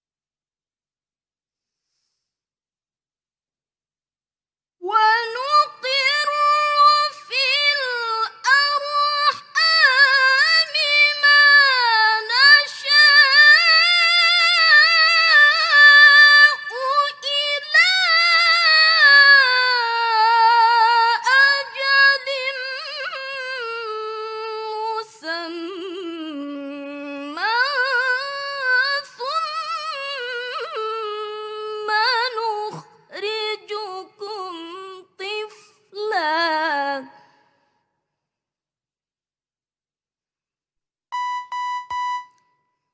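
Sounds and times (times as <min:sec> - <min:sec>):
girl reciting melodically: 0:04.8 - 0:37.1.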